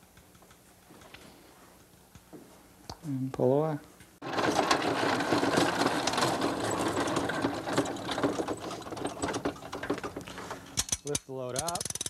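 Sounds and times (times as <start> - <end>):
hand truck wheels rattling on asphalt: 4.2 - 10.9.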